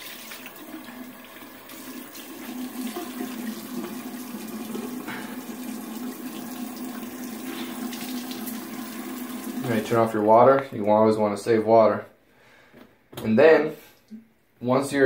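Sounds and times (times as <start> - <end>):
tap water splashing into sink: 0.0 - 9.9.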